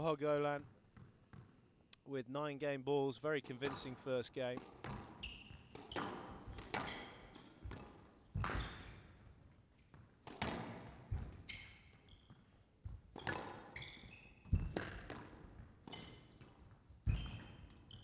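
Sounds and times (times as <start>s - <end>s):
squash ball hitting rackets and walls: 0.6s - 1.6s, 3.4s - 18.0s
shoes squeaking on court floor: 3.4s - 18.0s.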